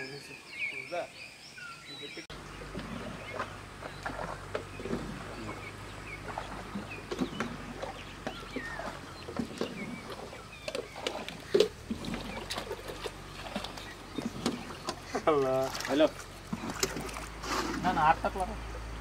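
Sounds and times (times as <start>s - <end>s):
bird chirps: 0.0s - 15.2s.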